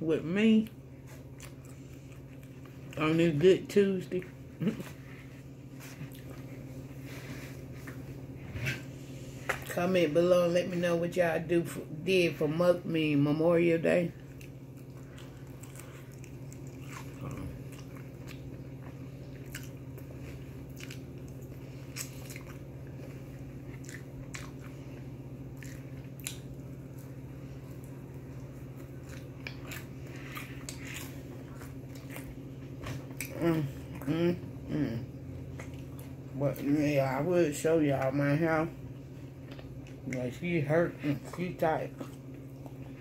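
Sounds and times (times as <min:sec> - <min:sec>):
steady low hum: 0:00.0 - 0:43.0
person chewing: 0:01.0 - 0:03.0, 0:04.3 - 0:07.0, 0:14.2 - 0:34.6, 0:35.3 - 0:36.2.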